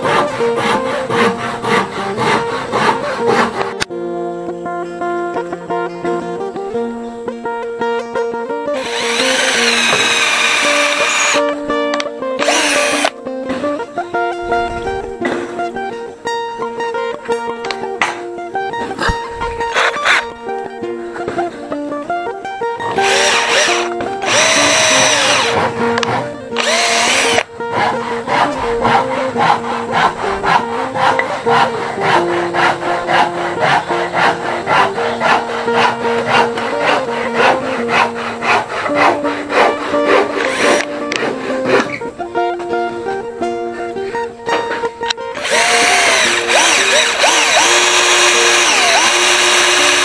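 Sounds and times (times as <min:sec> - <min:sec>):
background music: 0:00.0 - 0:50.0
cordless drill boring into wood: 0:08.8 - 0:11.5, 0:12.4 - 0:13.1, 0:19.7 - 0:20.2, 0:23.0 - 0:25.6, 0:26.6 - 0:27.5, 0:40.4 - 0:40.9, 0:45.4 - 0:50.0.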